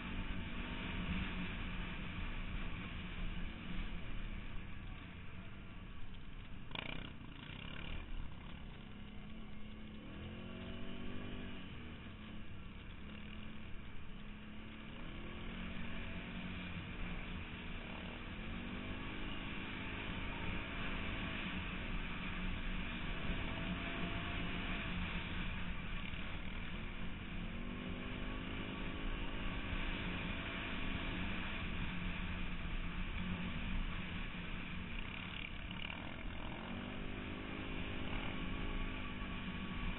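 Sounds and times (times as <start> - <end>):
quad bike engine revving: 6.7 - 12.0, 35.0 - 39.9.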